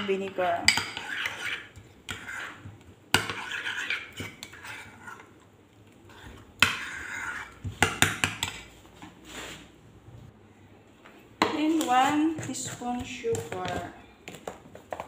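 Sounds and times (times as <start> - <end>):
metal spoon stirring in bowl: 0.0 - 5.5, 6.1 - 8.7, 11.4 - 15.0.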